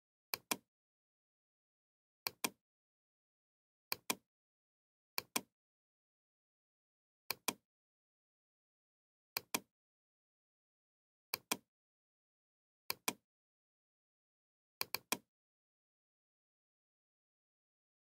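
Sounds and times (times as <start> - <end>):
computer mouse button clicking: 0.4 - 0.6, 2.3 - 2.6, 3.9 - 4.2, 7.3 - 7.6, 14.8 - 15.2.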